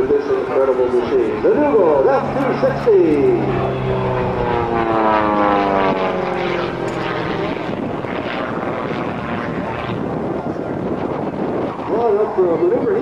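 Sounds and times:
propeller aircraft engine droning: 0.0 - 13.0.

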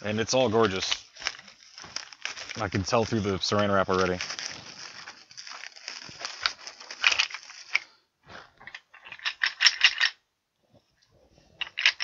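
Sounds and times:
plastic film crackling: 0.0 - 7.9.

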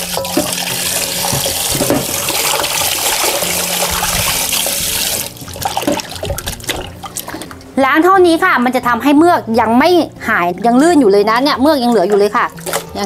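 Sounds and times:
tap water pouring into metal bowl: 0.0 - 7.6
hands kneading in water: 0.0 - 7.8, 10.5 - 13.0.

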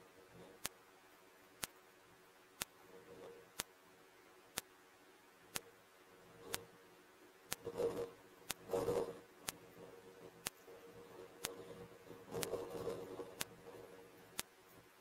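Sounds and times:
faint hiss: 0.0 - 15.0
sharp even ticking: 7.5 - 10.6, 11.2 - 14.5.

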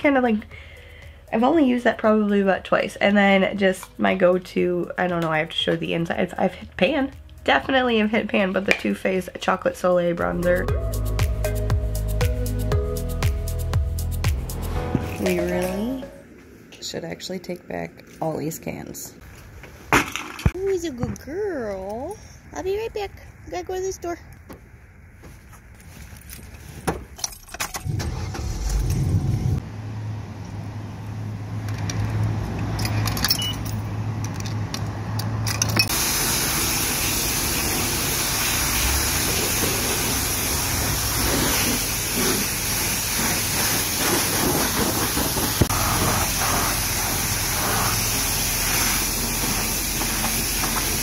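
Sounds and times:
keys rattling: 32.7 - 34.6
pressure water jet hissing: 35.9 - 51.0
truck engine running: 35.9 - 51.0.

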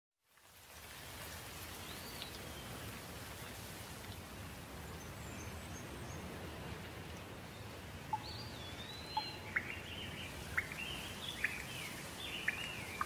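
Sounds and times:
steady rain falling: 0.2 - 13.0
faint bird chirps: 8.1 - 13.0.

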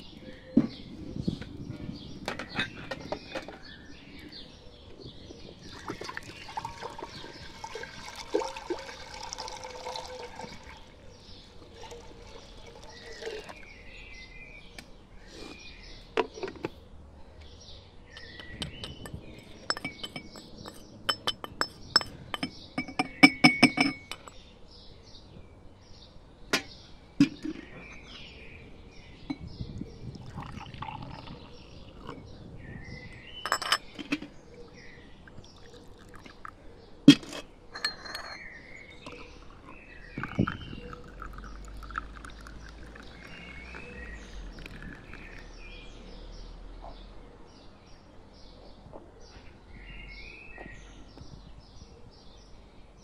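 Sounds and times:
birds chirping faintly: 0.0 - 53.0
liquid pouring: 5.7 - 13.6, 30.1 - 32.2, 35.3 - 36.6, 38.9 - 43.9, 44.6 - 45.4
pestle clinking in brass mortar: 18.2 - 24.4, 33.4 - 34.0
pots and lids knocking: 18.2 - 24.4.

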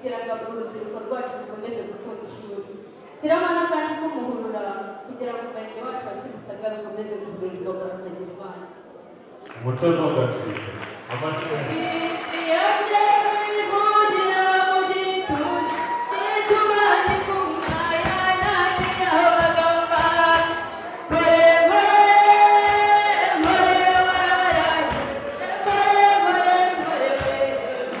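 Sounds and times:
woman singing through a pa: 11.7 - 28.0.

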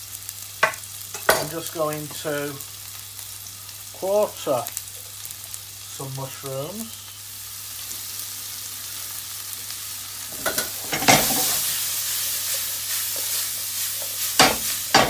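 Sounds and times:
food sizzling in frying pan: 0.0 - 15.0.

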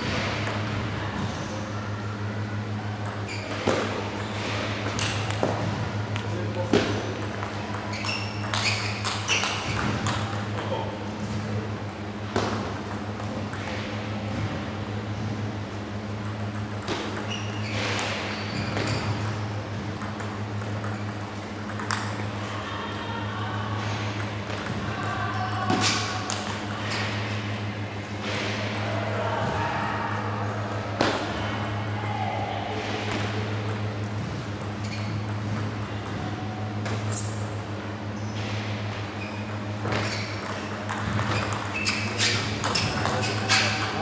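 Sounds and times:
steady low hum: 0.0 - 44.0
table tennis ball clicking: 7.2 - 10.7, 20.0 - 22.2.

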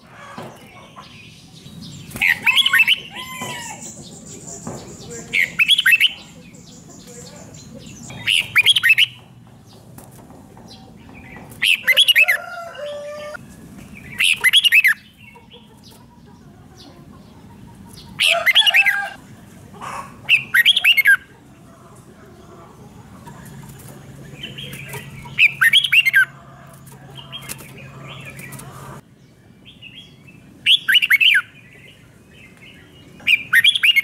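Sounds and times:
bulbul singing warbling phrases: 1.2 - 9.3.

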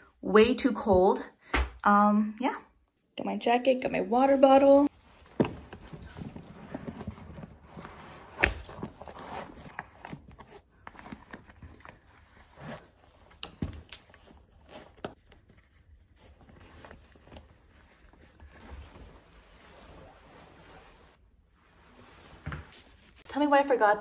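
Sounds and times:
clothing rustle: 4.6 - 23.8.

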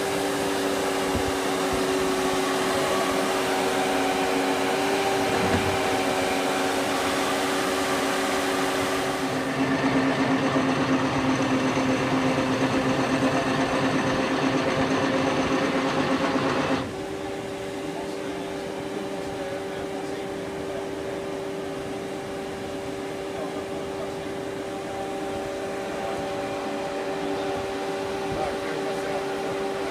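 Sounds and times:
band saw humming: 0.0 - 11.7.

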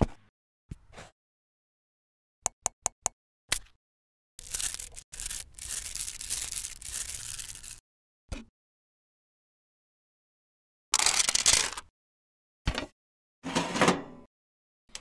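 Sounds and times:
small metal balls rattling in bowl: 4.4 - 7.8.

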